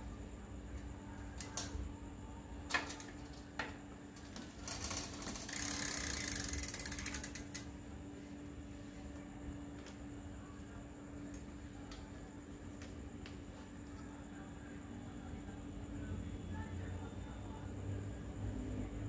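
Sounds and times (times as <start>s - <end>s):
bicycle hub ratcheting: 4.6s - 7.7s.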